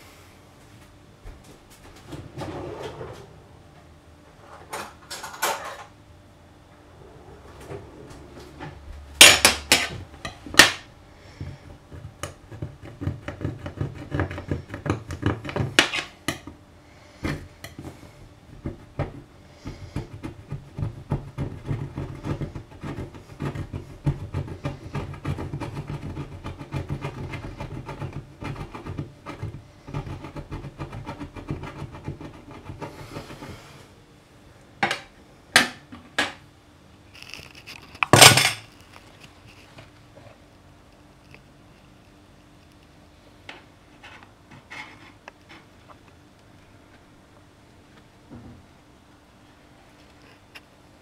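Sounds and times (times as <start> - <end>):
metal blade scraping glass hob: 9.2 - 10.8, 15.3 - 16.4.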